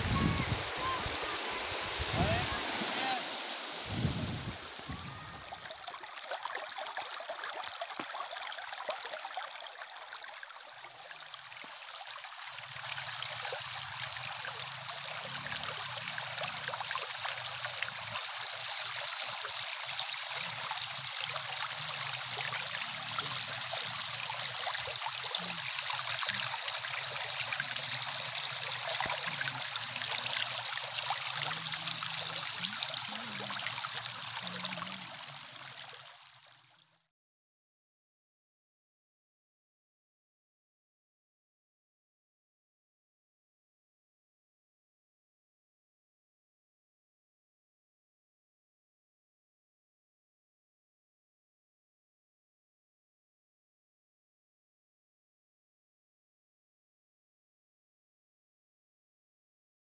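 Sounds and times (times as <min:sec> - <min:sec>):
water rushing over stones: 0:00.0 - 0:36.5.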